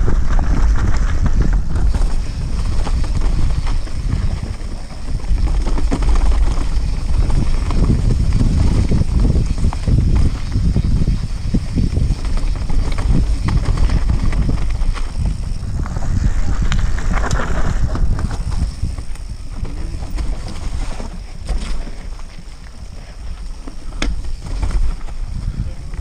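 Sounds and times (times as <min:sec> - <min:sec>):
mountain bike rumbling over rocks: 0:00.0 - 0:26.0
wind buffeting microphone: 0:00.0 - 0:26.0.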